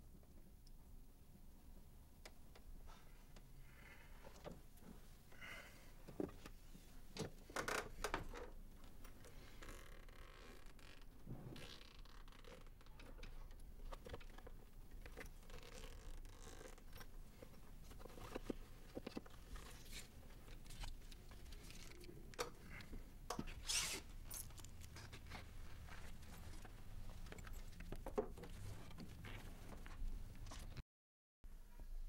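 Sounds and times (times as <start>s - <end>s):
rustling and scraping of handling: 6.0s - 30.8s
zip-like rasp: 23.6s - 24.1s.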